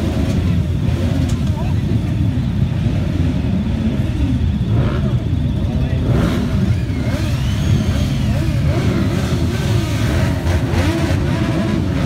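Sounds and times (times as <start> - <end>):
motorcycle engines revving: 0.0 - 12.0.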